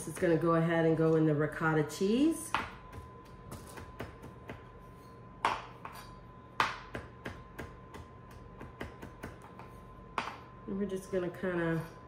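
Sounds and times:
knife chopping on cutting board: 2.5 - 4.8, 5.4 - 10.4.

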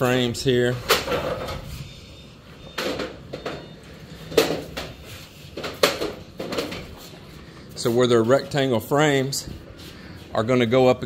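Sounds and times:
window frames knocking and clattering: 5.6 - 6.9.

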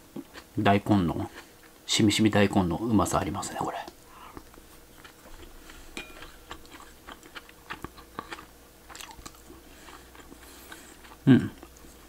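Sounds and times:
person chewing: 0.1 - 0.5, 3.6 - 12.0.

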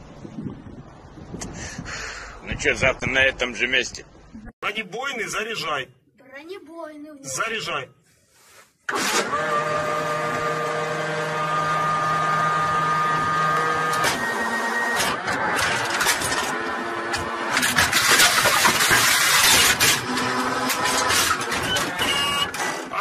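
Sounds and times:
electric motor whining: 8.9 - 22.9.

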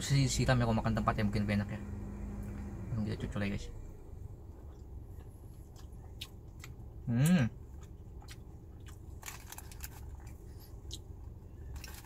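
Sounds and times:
person chewing with wet clicks: 4.5 - 12.0.

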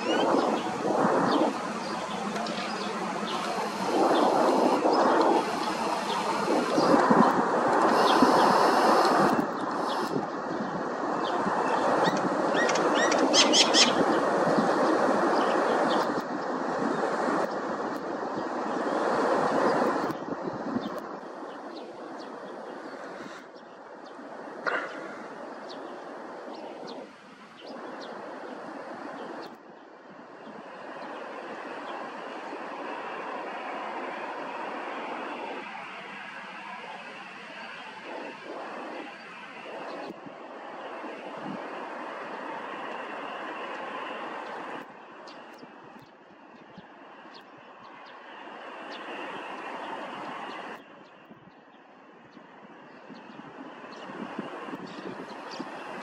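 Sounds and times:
airliner jet engines taxiing: 0.0 - 17.6, 30.0 - 56.0
small birds chirping: 0.0 - 17.6, 18.4 - 33.2, 42.1 - 56.0.

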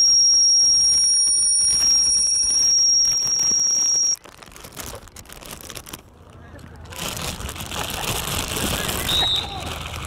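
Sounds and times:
loud high-pitched tone: 0.0 - 4.2
faint background noise: 0.0 - 10.0.

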